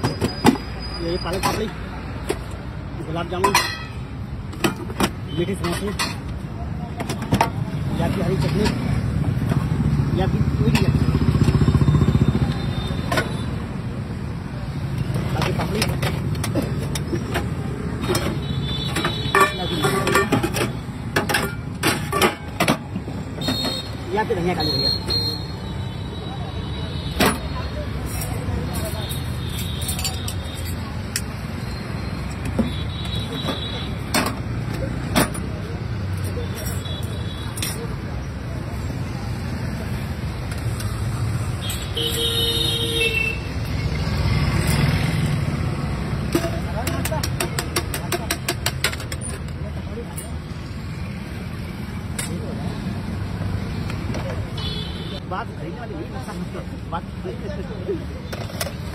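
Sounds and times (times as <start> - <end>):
street traffic hum: 0.0 - 58.9
metal bowls and lids clinking: 1.3 - 2.4, 3.4 - 6.3, 15.4 - 23.8, 28.0 - 31.6, 46.2 - 49.5.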